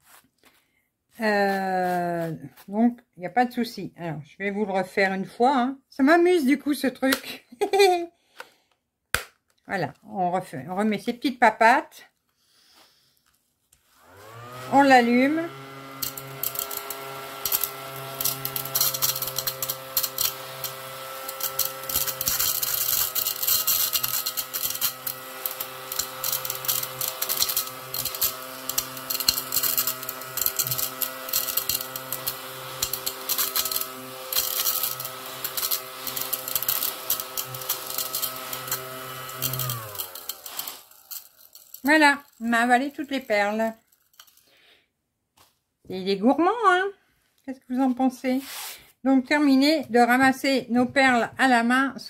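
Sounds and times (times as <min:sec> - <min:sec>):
mini vacuum cleaner motor hum: 0:14.0 - 0:43.3
plastic beads rattling: 0:14.7 - 0:44.5.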